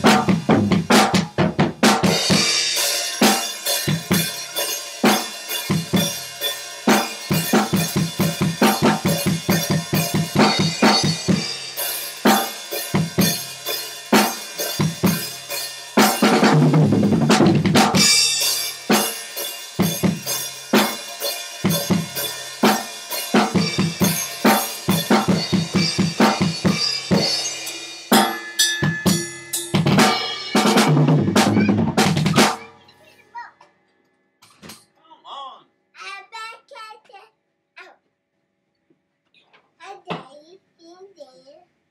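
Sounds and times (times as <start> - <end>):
drum kit groove: 0.0 - 33.5
ringing cymbals: 2.2 - 16.2, 18.0 - 30.7.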